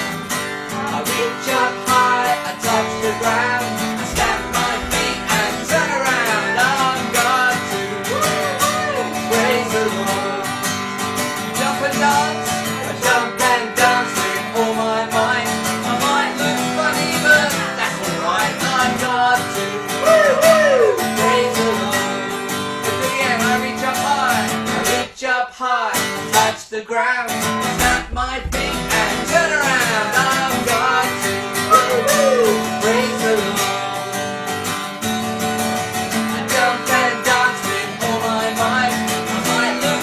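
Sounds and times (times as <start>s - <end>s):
acoustic guitar strumming: 0.0s - 40.0s
man and woman singing: 0.7s - 34.3s, 36.0s - 40.0s.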